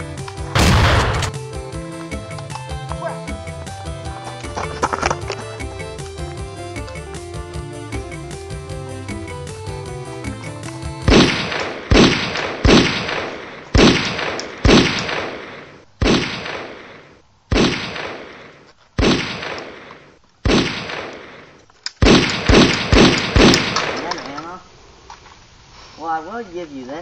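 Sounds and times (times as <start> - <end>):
music: 0.0 - 11.7
gunshots with echo: 0.6 - 1.4, 11.1 - 24.2.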